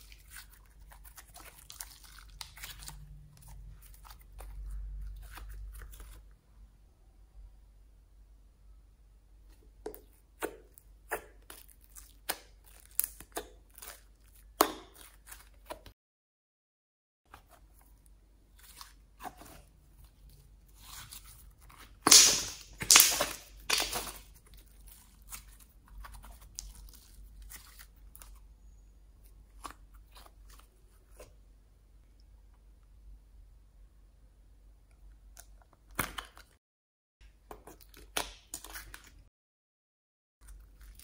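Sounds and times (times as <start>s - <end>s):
slime sticky pops and crackles: 22.0s - 24.2s.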